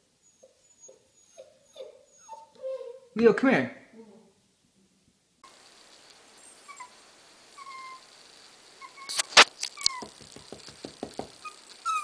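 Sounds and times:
puppy whimpering: 0.2s - 3.2s, 3.9s - 4.4s, 6.6s - 7.0s, 7.6s - 8.0s, 8.8s - 10.1s, 11.4s - 12.0s
soft thumps: 9.9s - 11.4s
sharp knocks: 10.0s - 11.4s.

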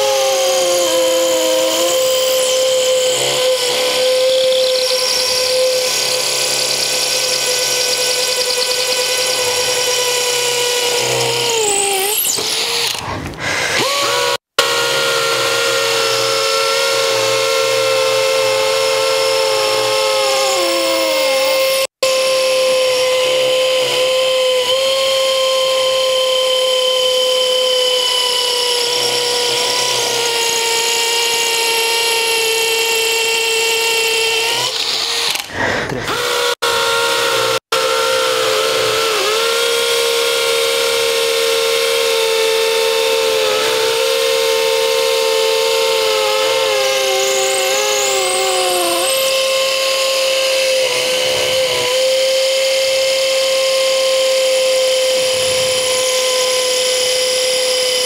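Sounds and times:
drill whine falling in pitch: 0.0s - 12.7s
hammer drill whining: 0.0s - 58.0s.

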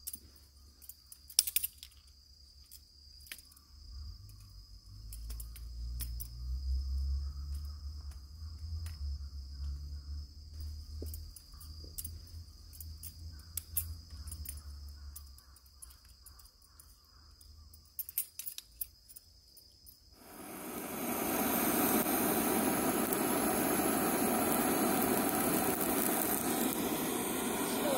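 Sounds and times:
metallic clicks of camp furniture: 0.0s - 3.6s, 11.1s - 20.0s
crickets chirping: 0.0s - 27.9s.

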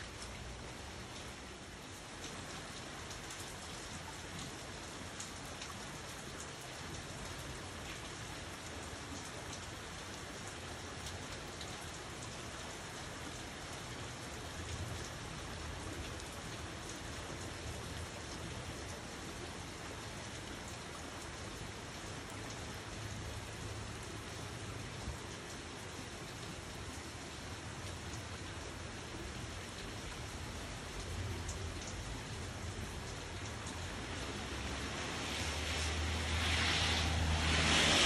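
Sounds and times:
steady rain hissing: 0.0s - 38.0s.

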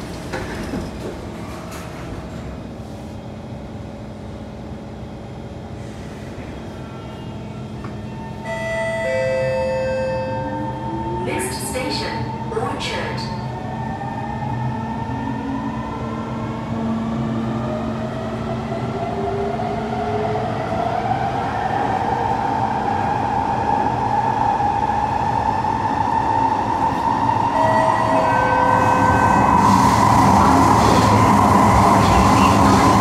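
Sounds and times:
wheels rumbling on rails: 28.0s - 33.0s.

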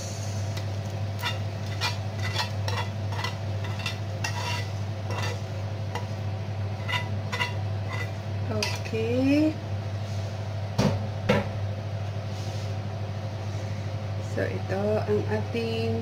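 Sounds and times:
steady low hum: 0.0s - 16.0s
tongs scraping grill pan: 1.2s - 6.2s, 6.8s - 8.9s.

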